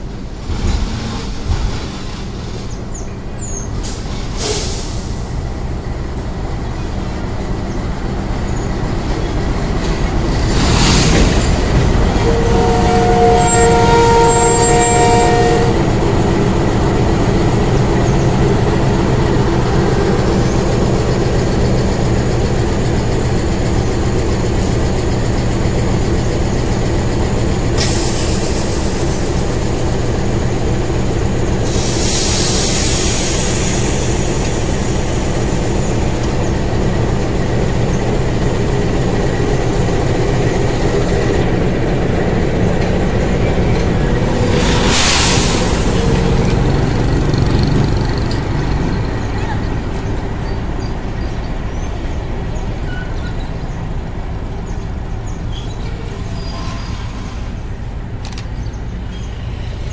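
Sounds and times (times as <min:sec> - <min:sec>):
train wheels rumbling: 0:00.0 - 0:59.9
locomotive horn chord: 0:12.2 - 0:15.9.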